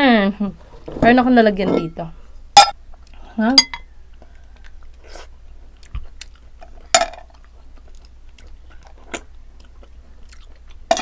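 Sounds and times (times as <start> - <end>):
chewing and sucking mussels: 4.1 - 10.9.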